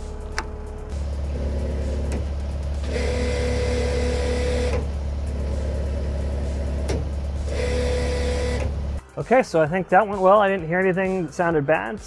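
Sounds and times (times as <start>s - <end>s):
diesel engine running: 0.0s - 9.0s
hydraulic motor whining: 0.0s - 9.0s.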